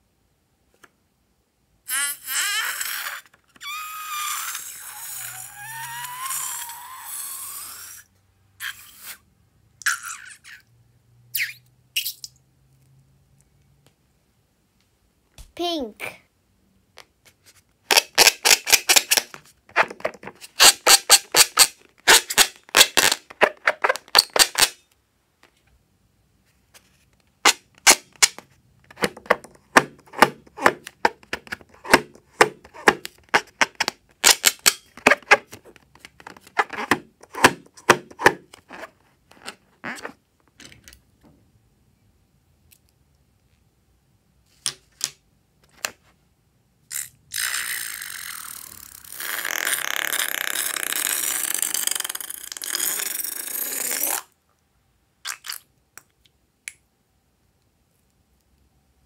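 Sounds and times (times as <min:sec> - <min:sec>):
balloon squeaking and crackling: 0:01.9 - 0:10.6, 0:17.9 - 0:24.8, 0:29.0 - 0:40.2, 0:46.9 - 0:54.3.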